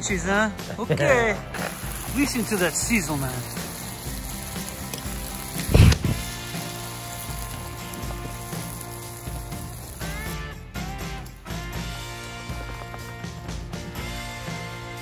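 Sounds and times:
faint background music: 0.0 - 15.0
food sizzling over campfire: 1.0 - 15.0.

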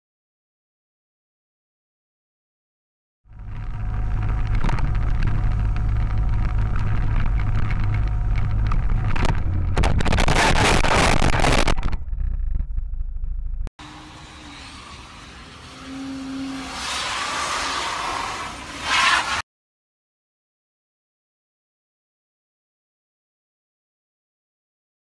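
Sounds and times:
traffic noise: 3.3 - 12.2, 13.8 - 19.4
vehicle road noise rumble: 3.3 - 19.4
loud harsh noise: 9.2 - 12.0, 13.8 - 19.4.

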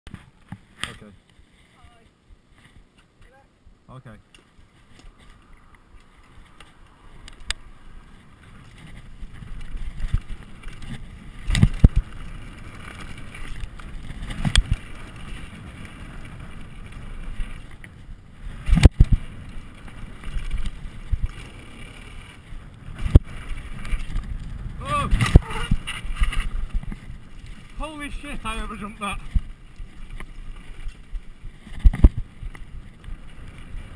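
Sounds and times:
bike tyres rumbling on dirt: 4.5 - 33.9
wind on microphone: 7.0 - 33.9.

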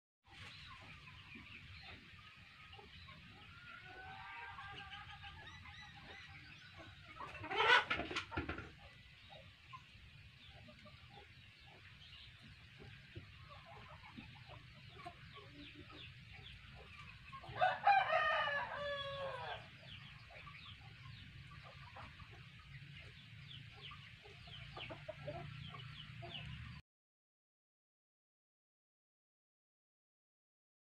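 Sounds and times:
rooster crowing: 17.6 - 19.7.

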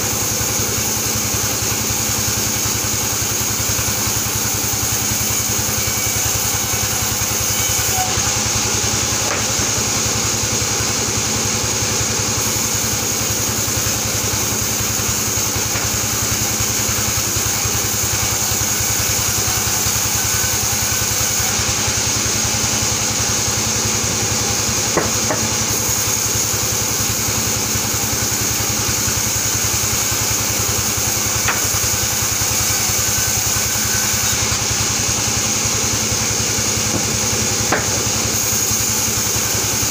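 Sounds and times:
band saw whining through wood: 0.0 - 39.9.

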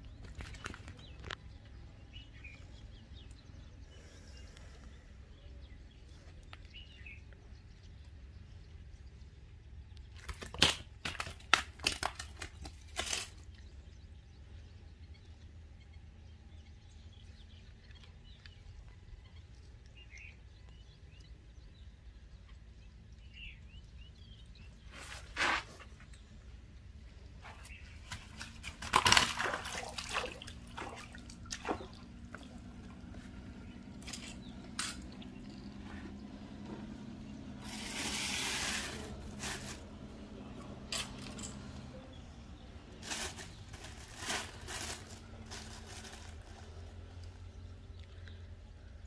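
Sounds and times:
crunching crinkling handling noises: 10.0 - 13.9, 27.3 - 42.0, 42.6 - 48.4.

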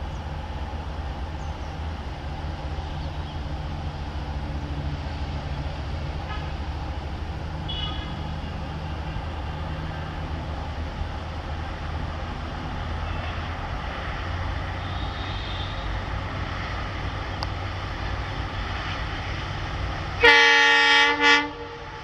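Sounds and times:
diesel locomotive engine rumbling: 0.0 - 22.0
locomotive air horn blasts: 7.7 - 8.2, 14.8 - 16.0, 20.2 - 22.0.

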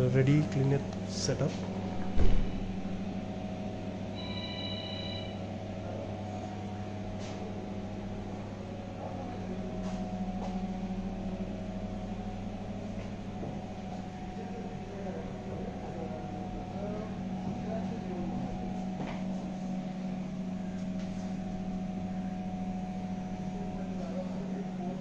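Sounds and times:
steady low hum: 0.0 - 25.0
short electronic tone: 4.1 - 5.4.

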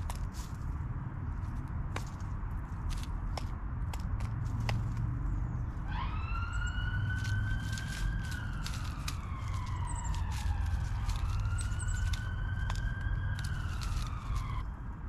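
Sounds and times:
emergency vehicle siren wailing: 5.8 - 14.9.

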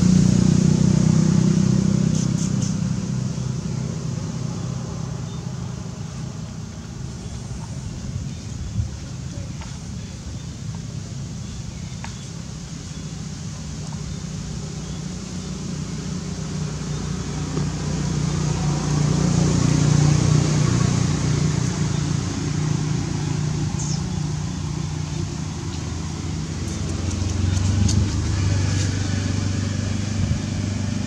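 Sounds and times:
vehicle engines humming: 0.0 - 31.0.

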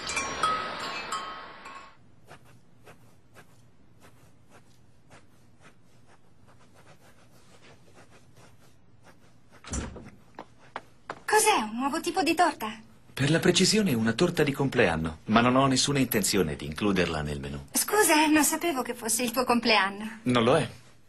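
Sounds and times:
whoosh with chiming tones: 0.0 - 2.0
pencil scratching on paper: 2.1 - 10.9.

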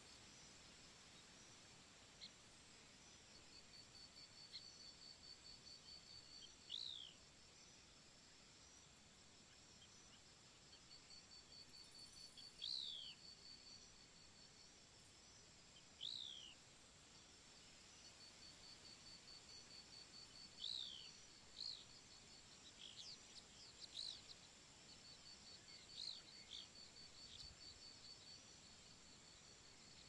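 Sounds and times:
high pulsing insect trill: 17.2 - 30.0.

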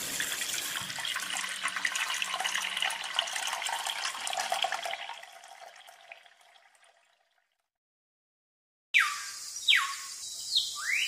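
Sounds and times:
water trickling into tank: 0.0 - 7.7.

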